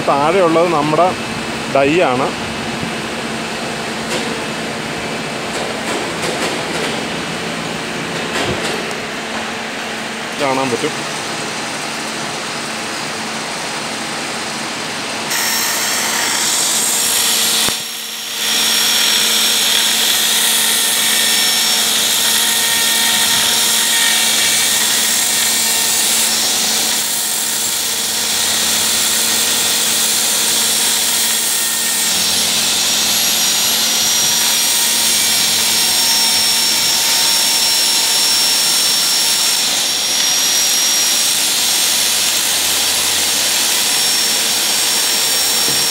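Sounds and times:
low workshop hum: 0.0s - 45.9s
die grinder whining: 12.7s - 45.9s.

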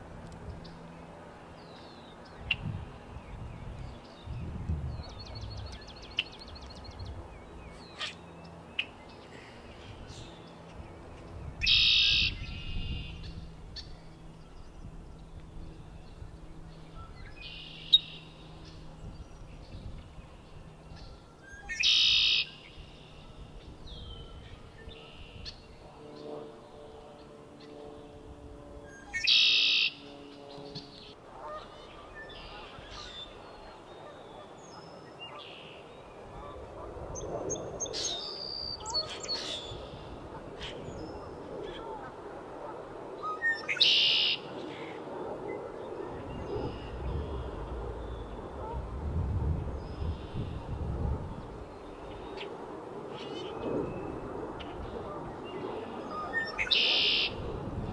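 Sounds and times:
bird singing buzzy trill: 0.5s - 36.5s, 37.2s - 41.7s, 43.2s - 44.6s, 49.4s - 57.4s
faint high bird calls: 11.6s - 16.1s, 20.4s - 25.8s, 28.9s - 36.6s, 43.2s - 45.0s, 51.6s - 57.4s.

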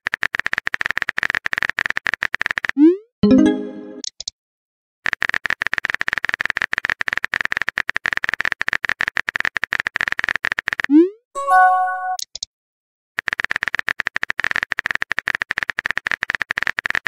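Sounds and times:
bright chime: 11.4s - 12.2s.

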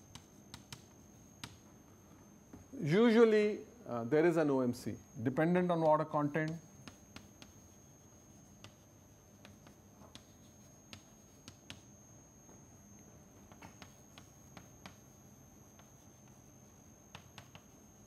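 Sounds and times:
chalk tapping and scraping: 0.0s - 1.6s, 5.8s - 11.9s, 13.6s - 18.0s.

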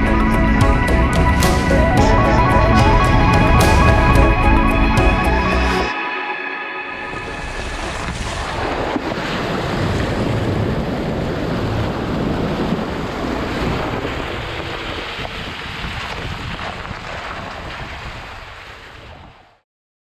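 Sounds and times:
water rushing and splashing: 6.8s - 19.1s.

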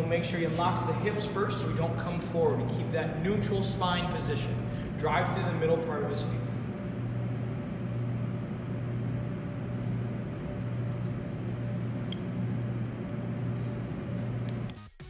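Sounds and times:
steady low hum: 0.0s - 14.8s.

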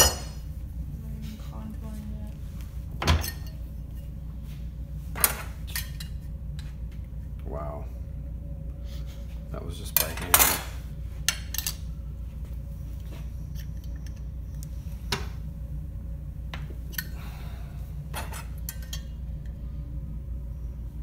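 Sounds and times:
steady background hum: 0.0s - 21.0s.

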